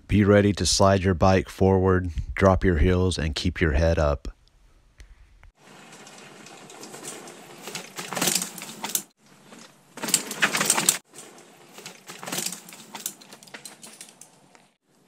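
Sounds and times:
bike tyres crunching leaves and dirt: 5.6s - 14.8s.

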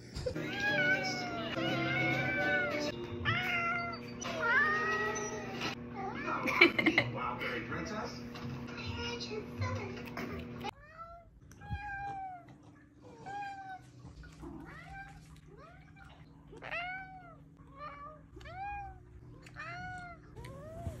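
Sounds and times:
cat meowing: 0.4s - 6.3s, 10.7s - 13.9s, 16.6s - 21.0s.

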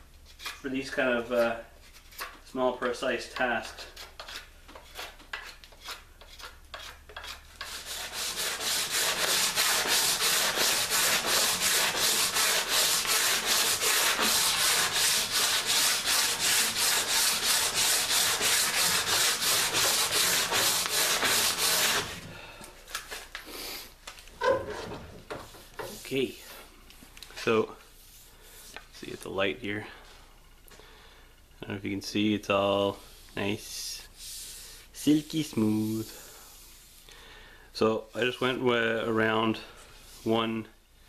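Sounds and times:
sandpaper rasping on wood: 3.6s - 22.3s.

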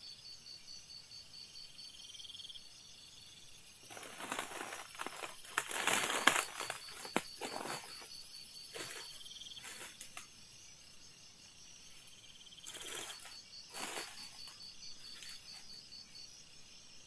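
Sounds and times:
insects trilling: 0.0s - 17.0s
soft rustles: 3.9s - 10.3s, 12.7s - 15.8s.

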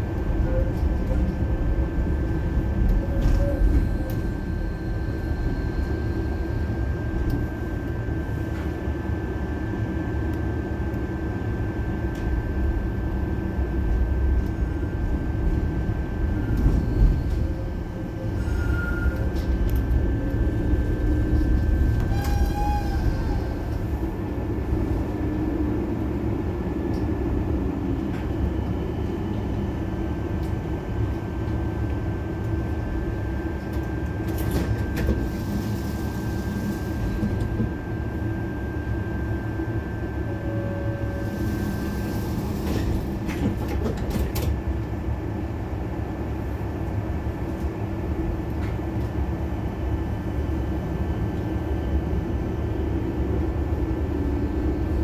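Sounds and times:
tram rumble: 0.0s - 55.0s.

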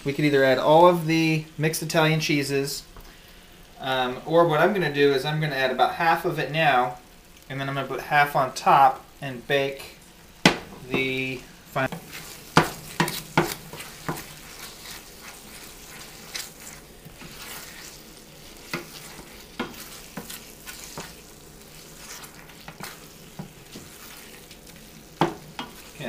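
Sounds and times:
dip sizzling: 0.0s - 26.0s
wooden spoon scraping pan: 10.5s - 26.0s.

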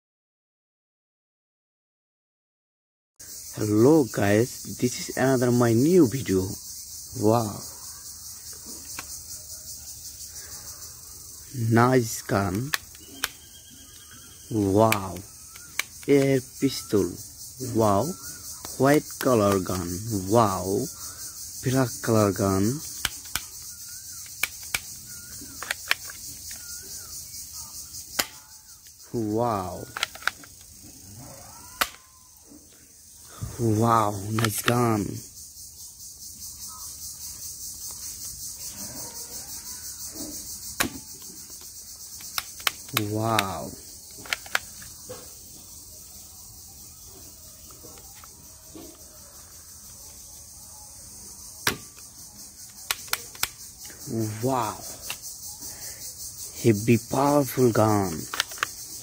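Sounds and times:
crickets chirping: 3.2s - 59.0s
high insect drone: 3.2s - 59.0s
bird calls: 3.3s - 59.0s
plastic toy pistol clicks: 14.9s - 16.3s, 22.8s - 26.6s, 28.1s - 28.5s, 29.8s - 30.7s, 31.8s - 32.0s, 42.2s - 43.1s, 44.1s - 44.9s, 51.6s - 52.0s, 52.7s - 53.6s, 58.3s - 58.8s
toy pistol click: 31.8s - 32.0s, 42.2s - 43.1s, 44.1s - 44.9s, 52.7s - 53.6s.

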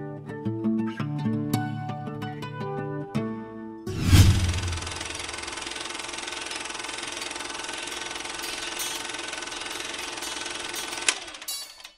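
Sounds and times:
film projector clattering: 5.5s - 11.9s.

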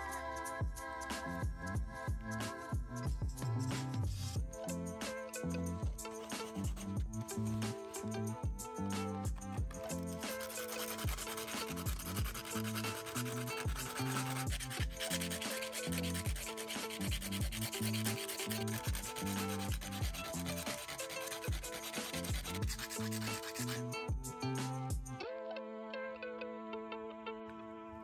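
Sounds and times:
background music: 0.0s - 28.0s
stick scratching on sandpaper: 5.0s - 24.8s.

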